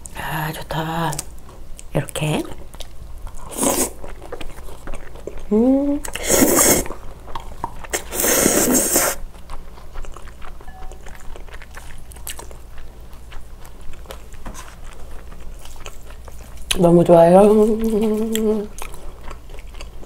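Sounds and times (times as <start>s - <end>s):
close chewing: 1.2s - 6.2s, 6.8s - 20.0s
slurping noodles: 6.1s - 6.9s, 8.0s - 9.2s.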